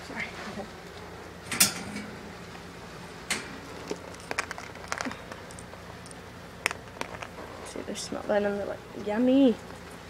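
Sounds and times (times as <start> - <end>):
plate clicking on wire cage: 3.3 - 3.6.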